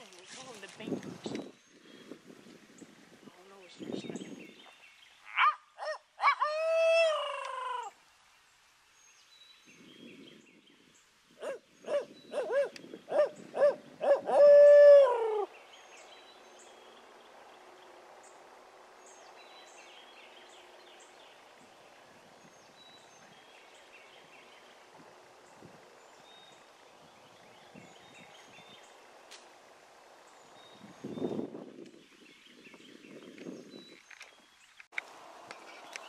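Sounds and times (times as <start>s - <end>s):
small birds chirping: 0.0s - 14.2s, 15.1s - 29.6s, 30.2s - 36.0s
owl hooting: 5.2s - 8.0s, 11.4s - 15.6s.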